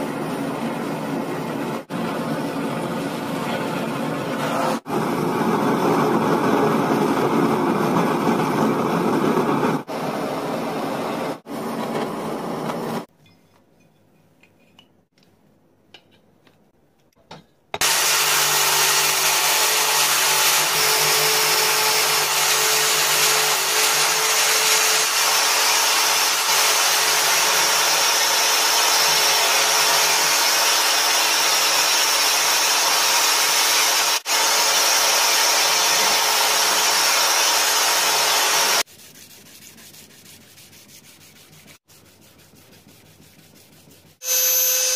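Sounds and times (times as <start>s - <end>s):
angle grinder grinding metal: 17.8s - 38.8s, 44.2s - 44.9s
brass scraping on sandpaper: 38.8s - 44.8s.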